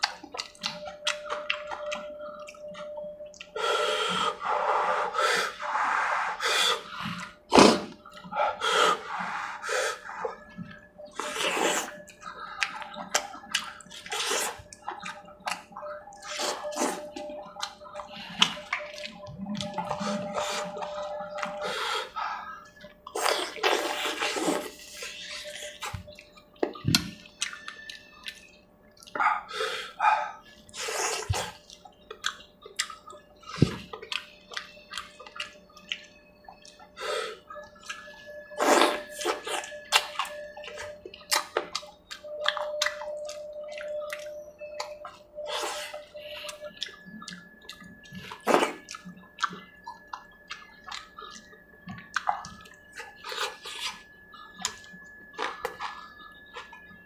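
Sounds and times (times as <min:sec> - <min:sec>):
chewing: 0:00.0 - 0:57.0
slurping: 0:03.8 - 0:15.6.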